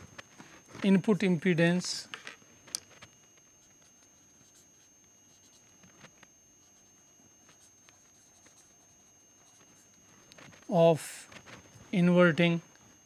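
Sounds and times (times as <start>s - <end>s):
pen scratching on paper: 6.6s - 9.9s.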